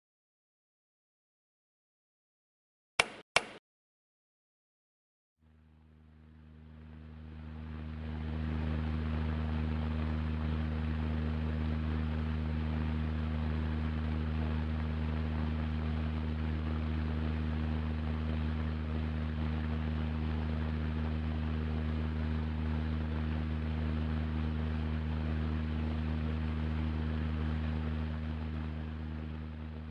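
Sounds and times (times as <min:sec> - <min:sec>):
electric fan running: 0:06.2 - 0:29.9.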